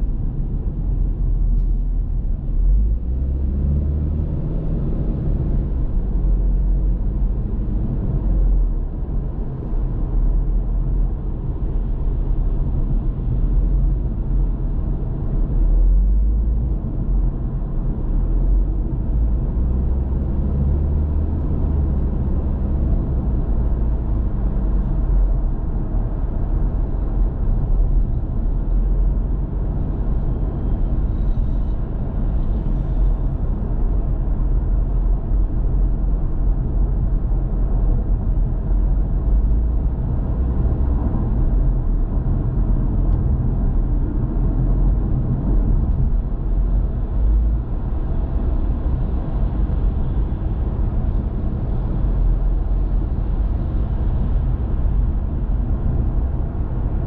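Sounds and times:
car engine and tyre rumble: 0.0 - 57.0.

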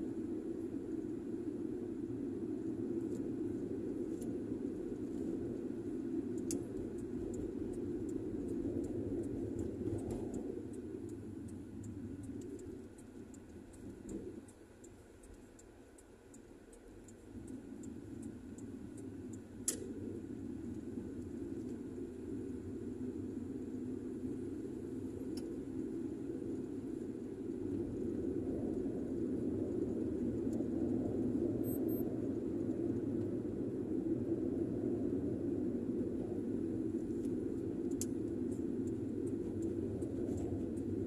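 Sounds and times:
car driving interior drone: 0.0 - 41.0
faint light ticks: 4.0 - 22.6, 25.1 - 27.0, 30.0 - 31.0, 36.2 - 41.0.

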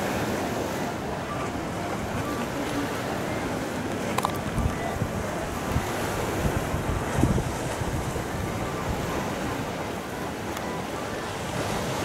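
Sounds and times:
surf washing over pebbles: 0.0 - 12.0
wind rumbling on microphone: 3.9 - 10.2.

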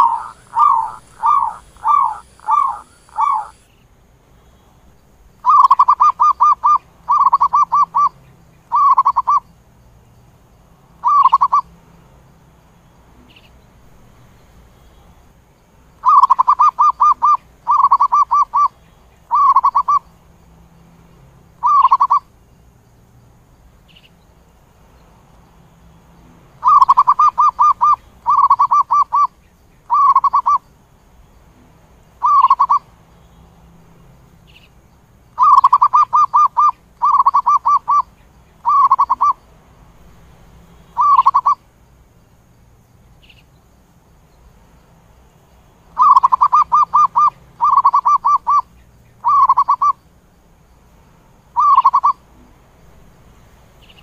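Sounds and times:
dove stuttering coos: 0.0 - 3.6, 5.4 - 8.1, 16.0 - 18.7, 19.3 - 20.0, 26.6 - 29.3, 35.4 - 38.0, 38.6 - 39.4, 46.0 - 48.6, 49.2 - 50.0.

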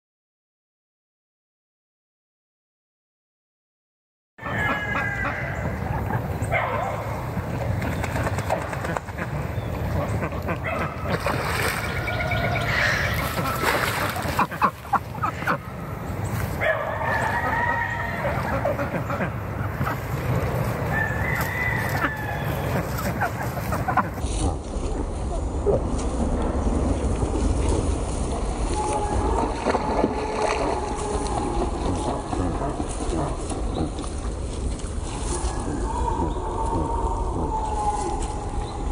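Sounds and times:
ducks quacking: 4.4 - 24.6, 28.7 - 34.5
steady low rumble: 5.2 - 38.9.

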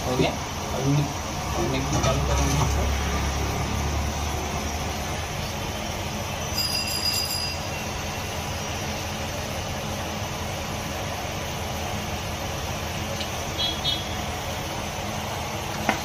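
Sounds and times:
metallic ring: 6.4 - 8.3.

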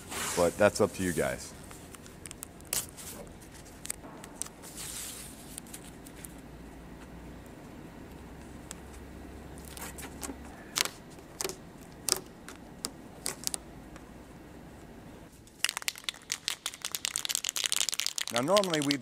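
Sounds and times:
tape crackling as pressed down: 1.6 - 6.4, 9.6 - 14.0, 15.4 - 19.0.

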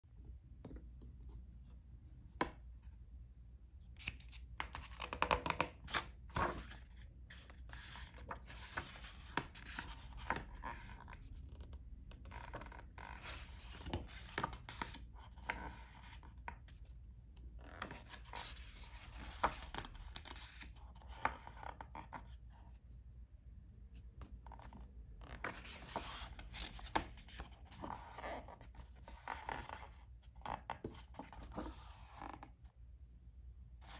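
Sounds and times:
book pages turning: 3.8 - 11.6, 12.2 - 16.8, 17.5 - 22.4, 24.2 - 32.6.

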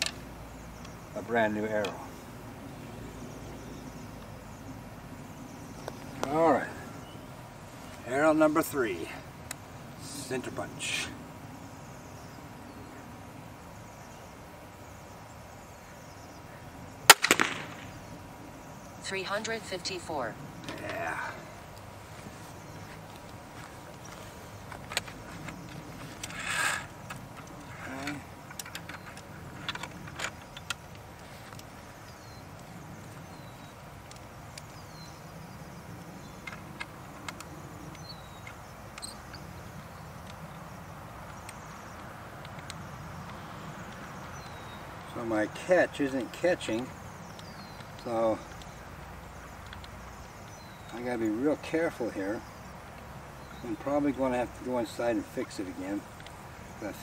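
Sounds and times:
bird chirps: 0.0 - 57.0
crossbow string release crack: 17.1 - 18.0
rattle of small cracks: 17.1 - 18.0, 23.2 - 31.9.

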